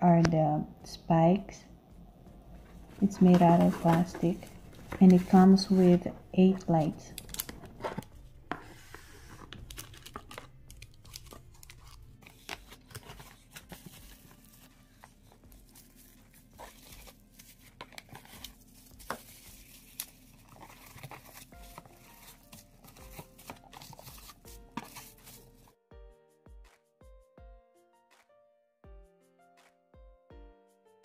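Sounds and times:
bubble wrap crinkling and crackling: 2.6 - 25.8.

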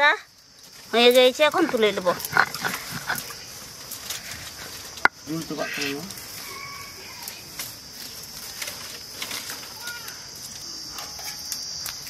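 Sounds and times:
high insect drone: 0.0 - 12.0
faint bird calls: 5.3 - 7.5.

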